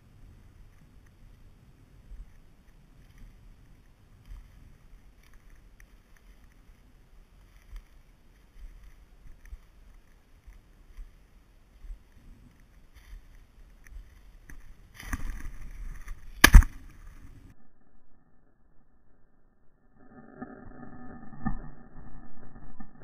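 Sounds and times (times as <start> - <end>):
footsteps through dry stubble: 0.5 - 17.5.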